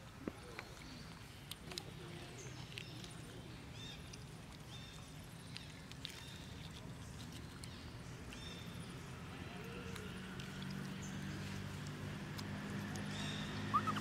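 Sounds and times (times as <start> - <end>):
high-pitched animal calls: 13.7 - 14.0.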